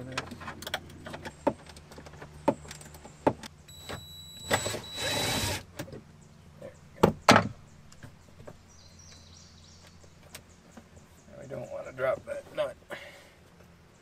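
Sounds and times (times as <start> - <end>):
cordless drill motor whine: 3.7 - 5.6.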